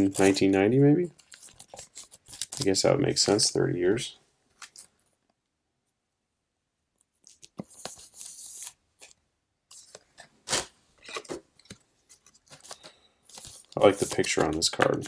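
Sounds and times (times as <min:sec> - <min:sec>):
trading cards rustling: 0:00.0 - 0:03.5, 0:04.6 - 0:05.0, 0:07.2 - 0:15.0
cards sliding scrapes: 0:07.6 - 0:11.4, 0:12.1 - 0:14.6.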